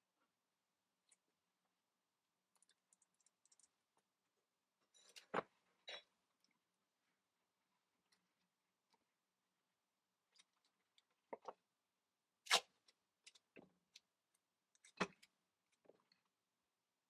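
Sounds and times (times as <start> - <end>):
hands handling cardboard clicks: 2.5 - 4.1.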